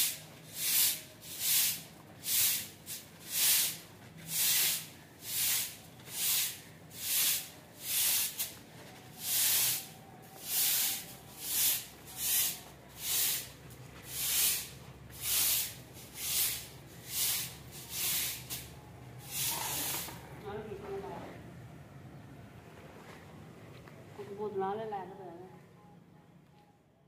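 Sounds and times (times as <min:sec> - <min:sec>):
broom sweeping concrete floor: 0:00.0 - 0:20.2.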